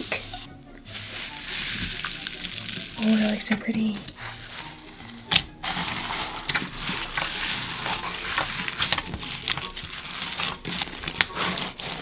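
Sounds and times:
slime crackling and popping: 1.4s - 4.2s, 5.3s - 12.0s.

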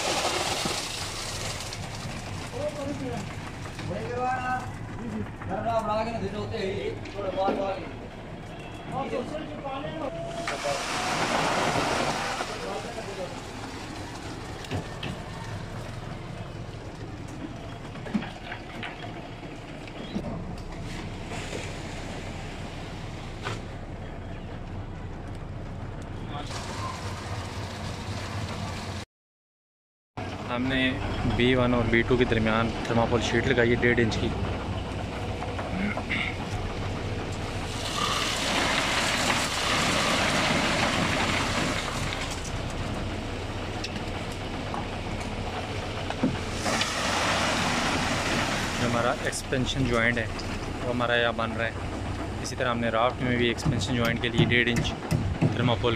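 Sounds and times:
wet concrete sliding down chute: 0.0s - 5.7s, 10.1s - 16.1s, 26.4s - 29.0s, 37.3s - 43.1s, 44.8s - 51.2s
construction machinery rumbling: 0.0s - 29.0s, 30.2s - 55.9s
sharp knocks: 53.6s - 55.9s.

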